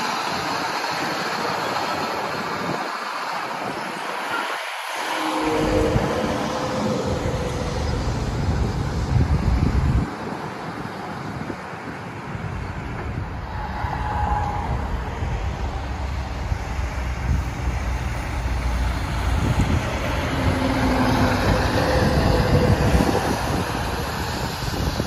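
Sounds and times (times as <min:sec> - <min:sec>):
road traffic: 0:00.0 - 0:25.0
diesel truck engine rumble: 0:05.0 - 0:25.0.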